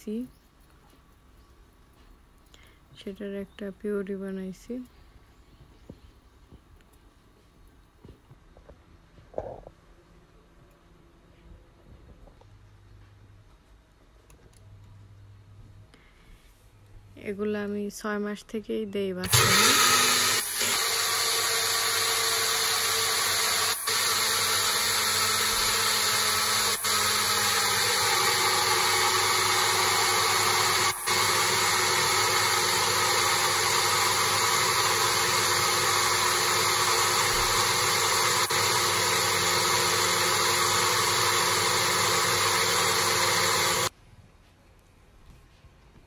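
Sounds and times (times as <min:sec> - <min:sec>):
blender motor running: 0:19.2 - 0:43.9.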